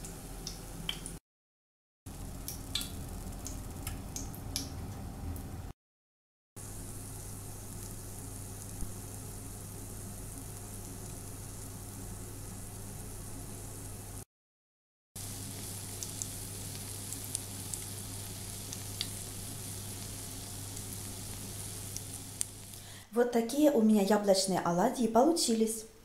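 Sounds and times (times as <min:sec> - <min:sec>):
oil popping and crackling: 0:02.1 - 0:04.8, 0:15.2 - 0:22.9
low hum: 0:02.1 - 0:05.7
oil sizzling in a pan: 0:06.6 - 0:14.3, 0:15.2 - 0:23.0.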